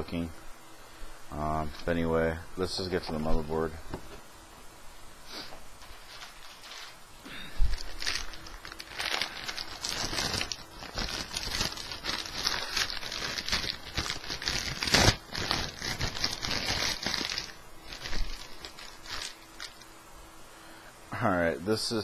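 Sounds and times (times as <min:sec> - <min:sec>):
loud plastic crackle: 0:05.8 - 0:07.0, 0:07.6 - 0:19.9
plastic bag crinkling: 0:05.8 - 0:19.9.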